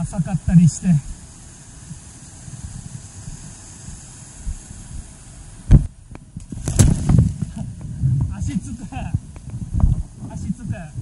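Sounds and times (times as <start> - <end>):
person jumping into water: 6.4 - 7.8.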